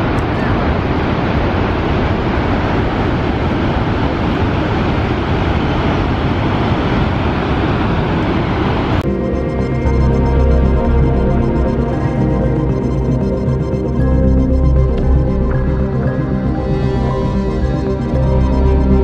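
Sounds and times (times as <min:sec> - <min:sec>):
background music: 0:09.0 - 0:19.0.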